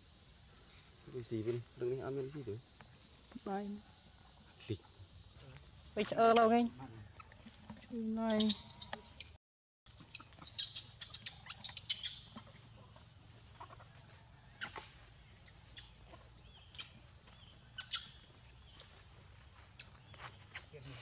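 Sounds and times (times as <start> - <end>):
high-pitched animal chirps: 8.2 - 12.5, 17.8 - 18.2.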